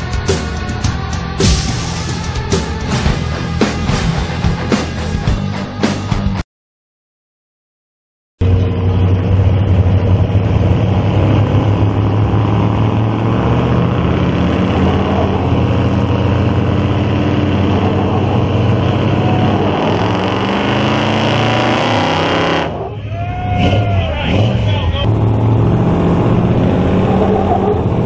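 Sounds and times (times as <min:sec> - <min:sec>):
pickup engines revving hard: 0:09.2 - 0:28.0.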